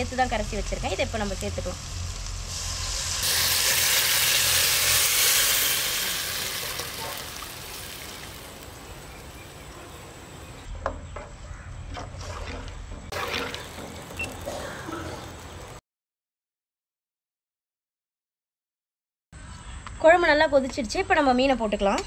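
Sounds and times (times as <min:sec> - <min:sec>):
liquid sizzling in hot oil: 0:00.1 - 0:09.7.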